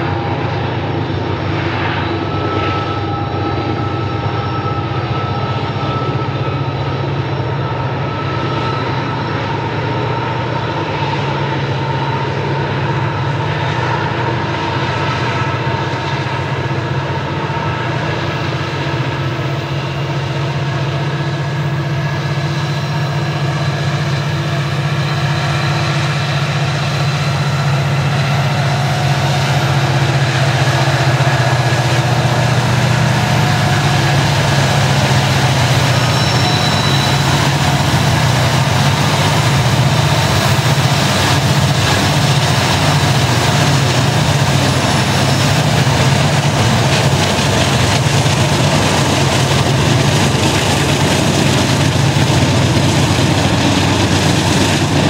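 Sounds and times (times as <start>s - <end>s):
diesel locomotives passing: 0.0s - 55.0s.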